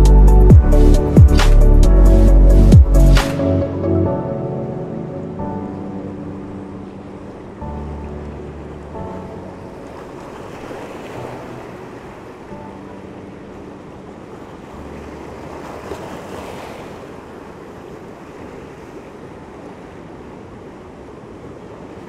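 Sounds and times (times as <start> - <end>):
ocean surf washing over rocks: 8.9 - 22.0.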